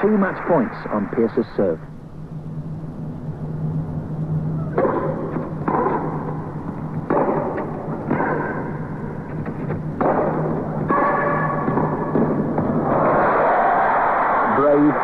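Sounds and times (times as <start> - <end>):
echoing arena noise: 2.4 - 15.0
tennis racket hitting ball: 4.8 - 12.8.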